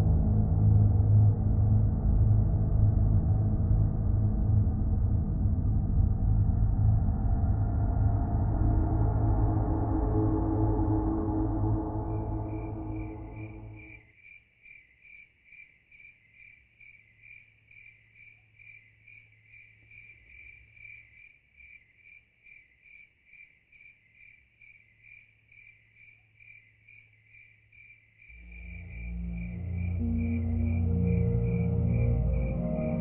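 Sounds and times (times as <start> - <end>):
faint low hum: 0.0 - 14.0, 28.4 - 33.0
cricket chirping: 10.0 - 33.0.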